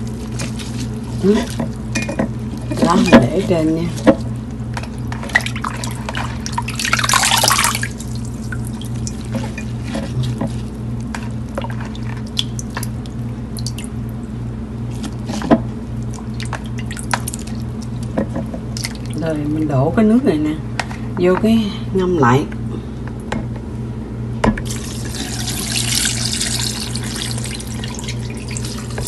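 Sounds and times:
squishing rustle of wet leaves: 0.0 - 13.6, 14.8 - 19.3
steady low hum: 0.0 - 29.0
wet clicks and drips: 12.3 - 13.9, 18.8 - 19.2.

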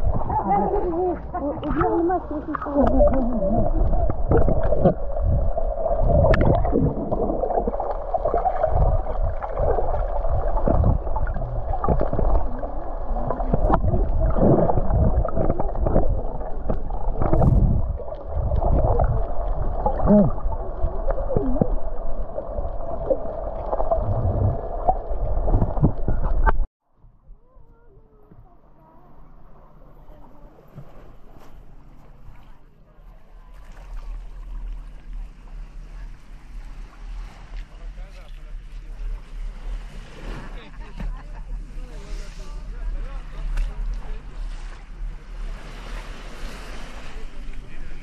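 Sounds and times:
underwater gurgling rush: 0.0 - 26.7.

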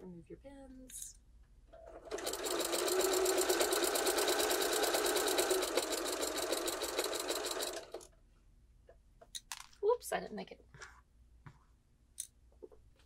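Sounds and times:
sewing machine stitching: 1.8 - 8.1.

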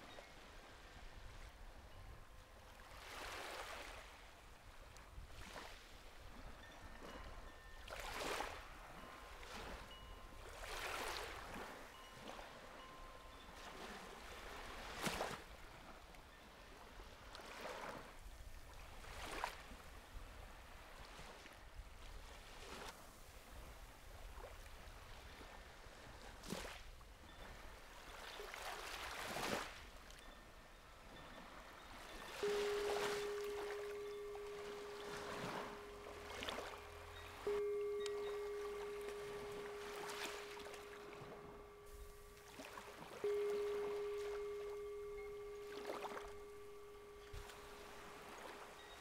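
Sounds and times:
small waves lapping on beach: 0.0 - 49.0
singing bowl ringing: 6.2 - 15.3, 30.2 - 49.0.

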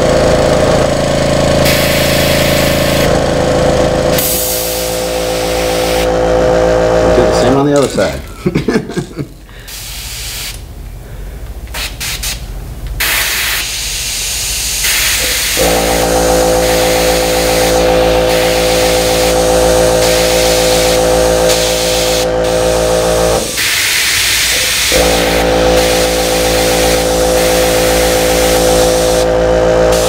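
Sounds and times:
compressor humming: 0.0 - 30.0
airbrush hissing: 1.6 - 3.2, 4.1 - 6.1, 9.7 - 10.6, 13.0 - 29.3.

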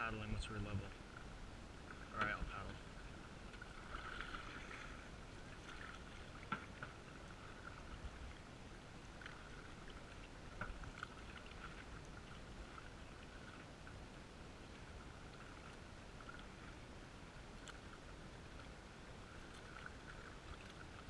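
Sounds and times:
paddle splashes and knocks: 1.8 - 8.4, 9.1 - 14.0.

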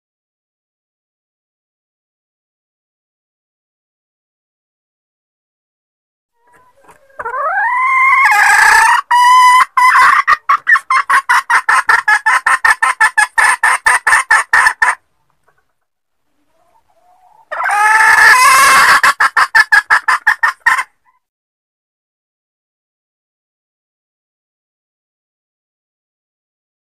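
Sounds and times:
hen cackling: 6.4 - 15.0, 16.4 - 21.3.

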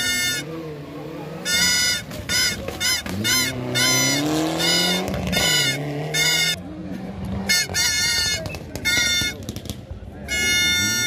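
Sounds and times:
short high-pitched honking hoots: 0.0 - 0.6, 1.4 - 6.6, 7.4 - 9.4, 10.3 - 11.0
rally car engine accelerating past: 3.0 - 7.5.

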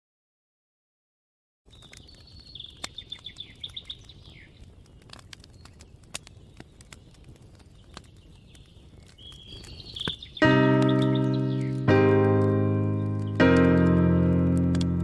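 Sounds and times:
birds chirping: 1.7 - 15.0
campfire crackling: 1.7 - 15.0.

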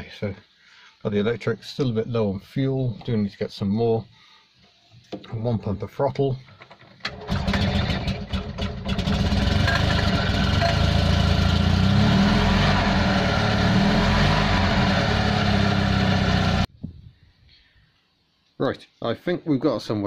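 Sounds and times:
engine cranking and running: 7.0 - 16.7.

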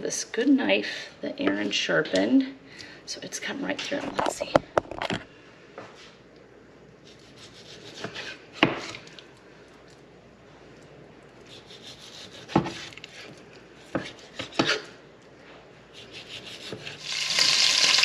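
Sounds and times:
knife slicing raw meat: 7.1 - 9.1, 11.4 - 14.9, 15.9 - 17.0.

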